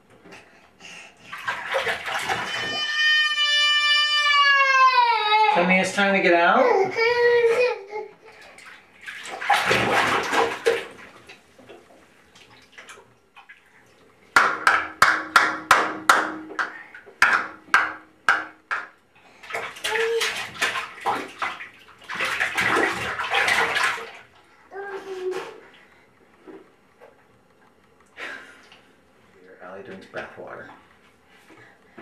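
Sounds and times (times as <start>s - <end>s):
bath water splashing: 0.0s - 4.4s, 7.6s - 18.6s, 19.3s - 25.9s.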